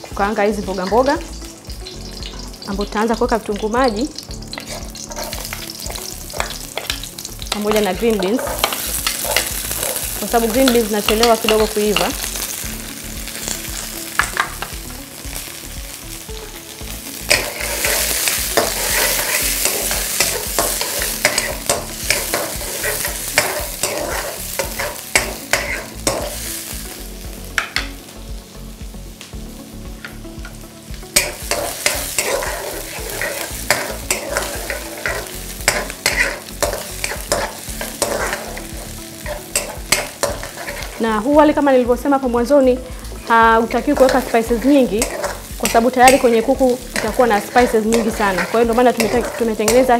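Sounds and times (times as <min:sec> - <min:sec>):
vegetables sizzling in oil: 0:00.0 - 0:49.9
spatula scraping and tapping wok: 0:04.3 - 0:14.9, 0:17.1 - 0:26.6, 0:27.5 - 0:28.0, 0:30.0 - 0:41.4, 0:43.0 - 0:49.9.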